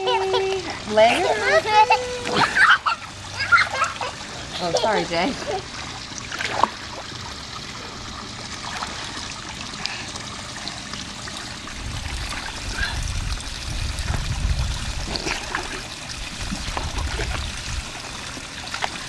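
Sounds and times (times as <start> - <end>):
pool water splashing: 0.0 - 19.0
low rumble: 11.6 - 18.0.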